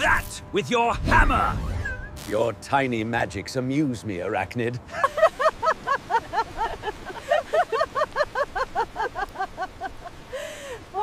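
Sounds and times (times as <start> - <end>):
women laughing heartily: 4.9 - 11.0.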